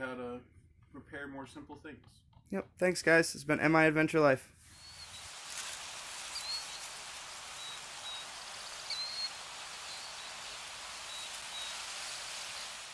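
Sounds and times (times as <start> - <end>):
faint high bird chirps: 4.7 - 12.9
wind or rain through trees: 4.7 - 12.9.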